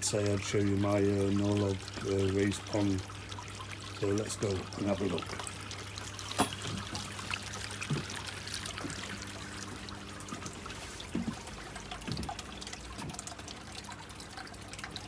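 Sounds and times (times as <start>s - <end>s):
water trickling: 0.0s - 15.0s.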